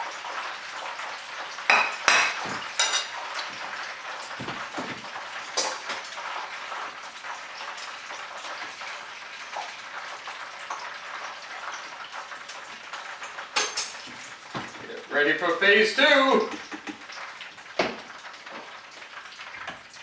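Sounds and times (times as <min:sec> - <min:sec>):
oil sizzling in a pan: 0:00.0 - 0:20.0
utensil clinking on cookware: 0:01.7 - 0:03.5, 0:05.5 - 0:06.1, 0:13.5 - 0:14.1.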